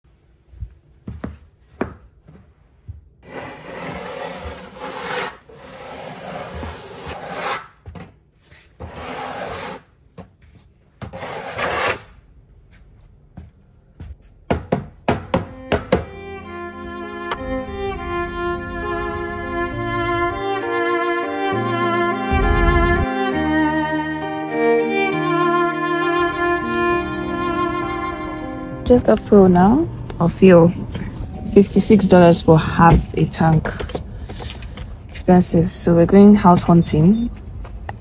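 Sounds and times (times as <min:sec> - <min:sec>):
snow shovel scraping wooden deck: 0:03.2 - 0:07.7, 0:08.8 - 0:09.9, 0:11.1 - 0:12.1
sharp knocks: 0:14.5 - 0:16.2
string music: 0:15.4 - 0:34.4.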